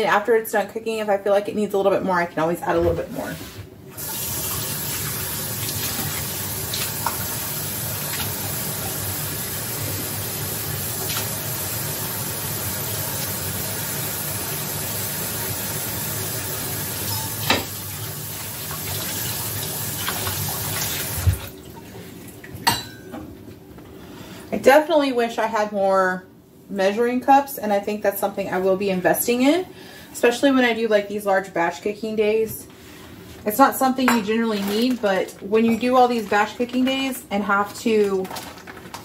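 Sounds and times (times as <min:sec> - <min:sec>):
faucet running into sink: 0:04.0 - 0:21.5.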